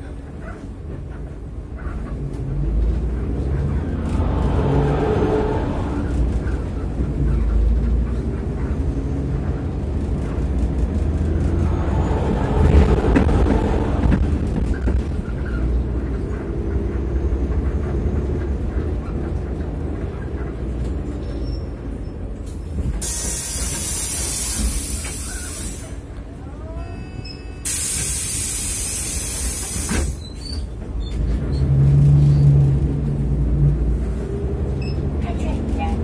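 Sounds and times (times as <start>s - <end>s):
bus engine droning: 0.0s - 36.0s
low hum: 3.0s - 7.6s
compressed air hissing: 23.0s - 26.0s, 27.6s - 30.2s.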